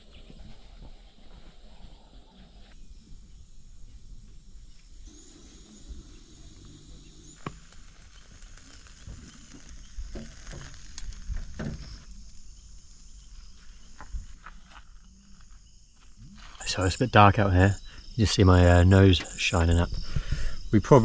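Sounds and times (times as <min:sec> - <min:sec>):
insects chirring: 0:00.0 - 0:21.0.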